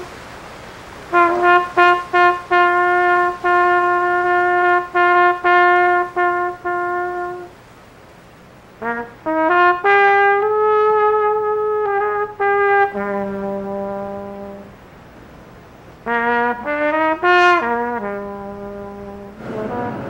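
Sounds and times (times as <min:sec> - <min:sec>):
trumpet melody: 0:00.0 - 0:00.2, 0:01.0 - 0:07.6, 0:08.8 - 0:14.9, 0:16.0 - 0:20.0
low brass note held: 0:17.6 - 0:20.0.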